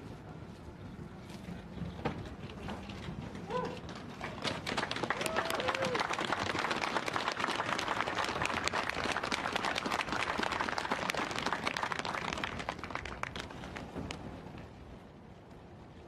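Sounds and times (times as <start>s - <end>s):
audience applauding: 4.2s - 14.0s.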